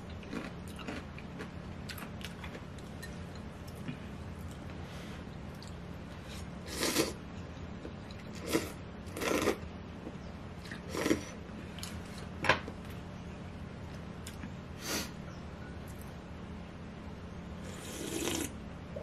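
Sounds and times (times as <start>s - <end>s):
noodles being slurped: 17.7s - 18.5s.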